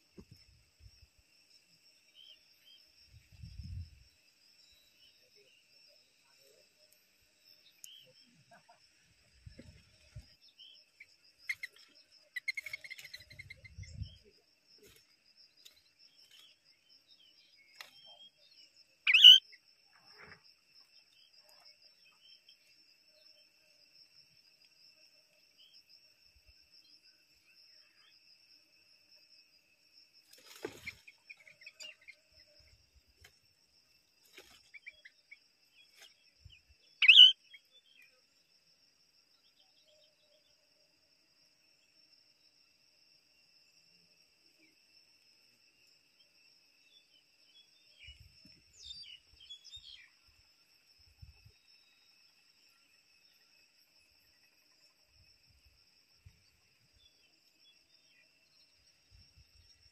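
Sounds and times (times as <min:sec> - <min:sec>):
high insect trill: 0:00.0 - 0:59.9
soft bird chirps: 0:04.6 - 0:23.3, 0:34.4 - 0:38.2, 0:46.8 - 0:50.3
sharp short bird calls: 0:19.1 - 0:19.4, 0:37.0 - 0:37.4.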